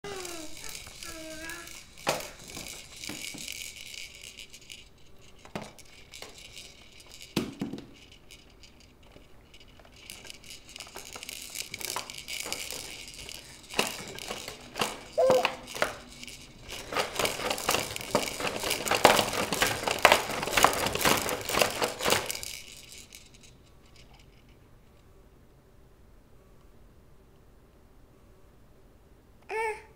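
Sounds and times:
clicking and crackling: 0.0 - 23.3
plastic baby toys rattling: 0.0 - 24.3.

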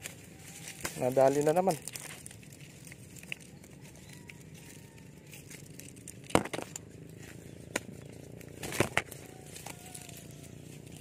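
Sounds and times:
dry grass rustling and snapping: 0.0 - 11.0
stems cracking sharply: 0.7 - 3.5, 5.3 - 7.0, 7.7 - 10.2.

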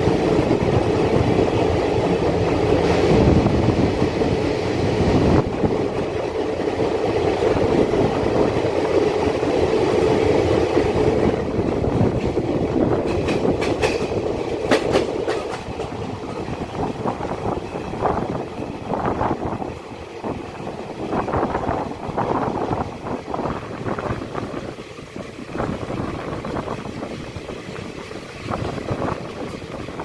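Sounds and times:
train wheels rumbling on rails: 0.0 - 30.0
wheels clicking over rails: 5.4 - 18.8.

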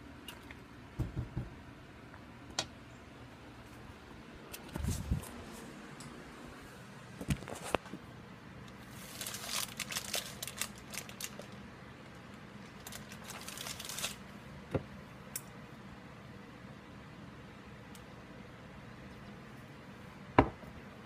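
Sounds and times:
plastic packaging crinkling: 8.7 - 14.3.

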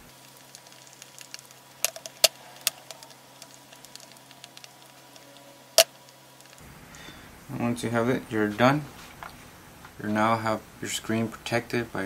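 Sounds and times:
small clicks: 0.1 - 7.0.

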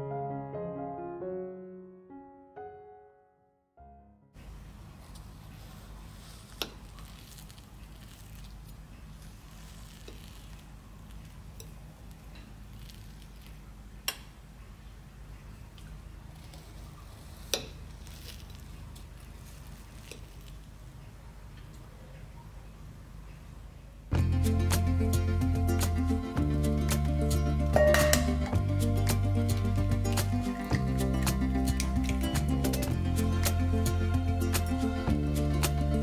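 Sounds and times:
soft patter: 4.9 - 13.7, 15.7 - 22.6.

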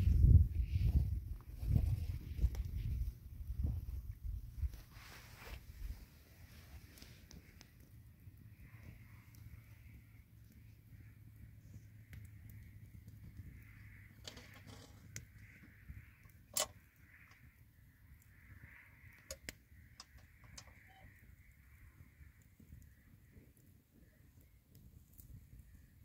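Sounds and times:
fire low rumble: 0.0 - 26.0
wood fire crackling and popping: 0.0 - 26.0.

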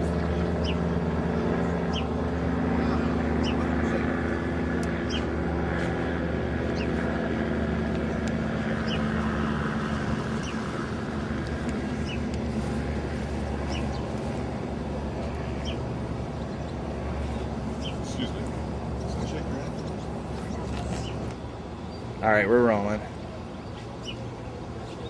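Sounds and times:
low engine-like hum: 0.0 - 25.0.

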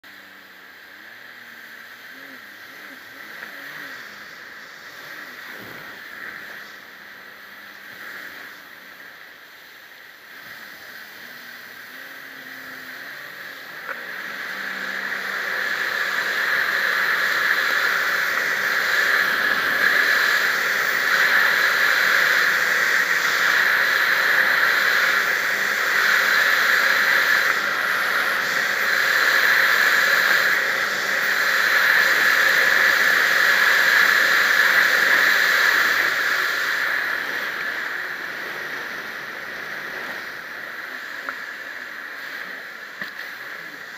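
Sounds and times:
jet ski engine running: 0.0 - 43.9.

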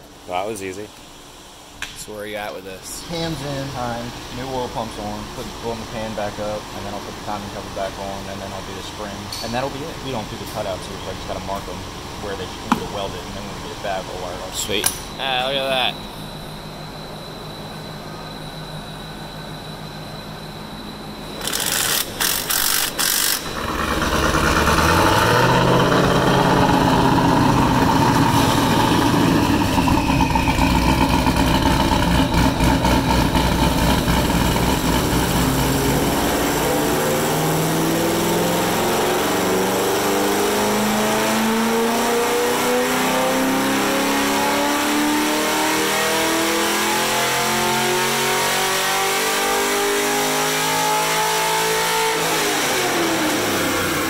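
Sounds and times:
workshop hum: 0.0 - 54.0
car engine idling unevenly: 0.1 - 14.8, 23.2 - 38.2
car engine cranking and starting: 21.3 - 41.0
engine revving up: 21.3 - 54.0.

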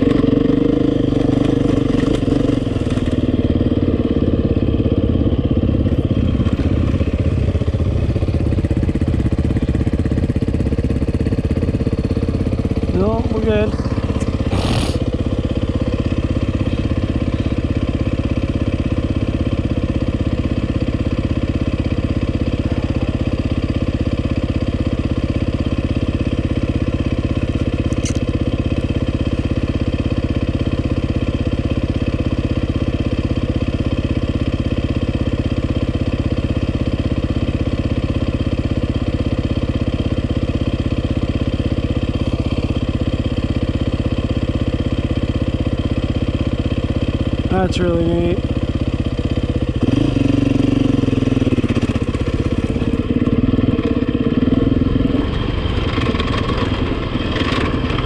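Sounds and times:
dirt bike engine idling: 0.0 - 58.0
brief click: 27.9 - 28.3.

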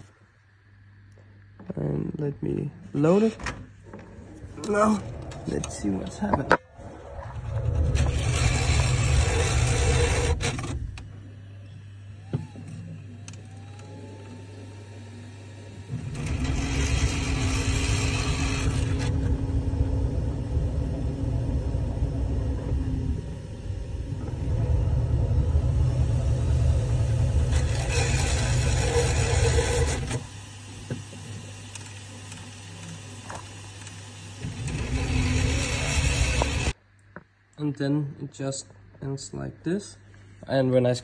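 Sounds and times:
printer mechanical whirring: 3.0 - 11.3, 11.9 - 36.8
short rising whine: 4.1 - 30.3.

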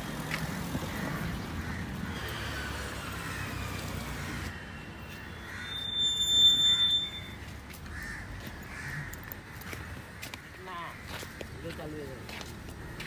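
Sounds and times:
street traffic rumble: 0.0 - 13.0
high-pitched electronic beep: 5.2 - 7.5.

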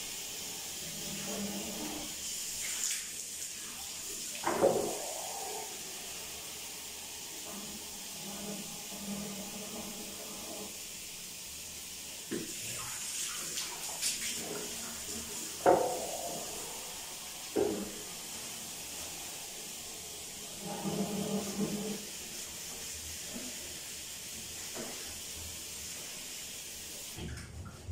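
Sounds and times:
short hissing bursts: 0.0 - 24.4
steady hiss: 0.0 - 27.2
knocks against sink: 17.6 - 17.9.

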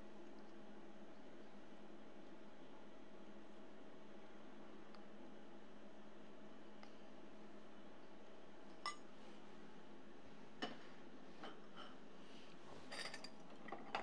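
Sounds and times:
metal spoon clinking on dishes: 8.8 - 9.1.

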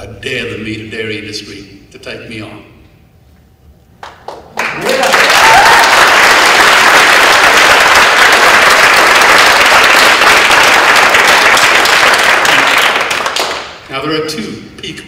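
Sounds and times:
audience applauding: 4.0 - 13.8.

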